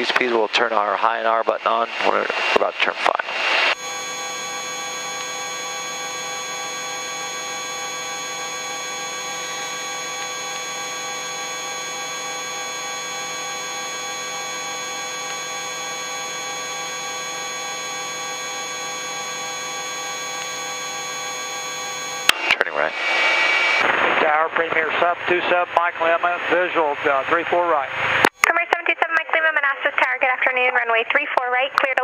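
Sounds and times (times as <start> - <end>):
helicopter turbine whine: 0.8 - 28.1.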